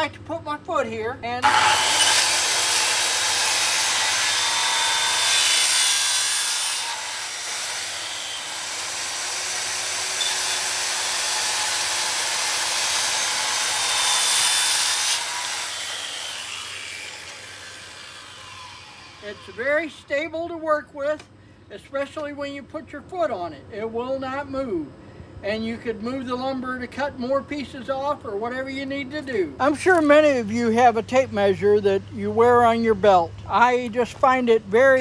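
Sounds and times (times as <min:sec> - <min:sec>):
saw motor winding down: 0:01.4 - 0:19.7
circular saw cutting wood: 0:01.4 - 0:20.0.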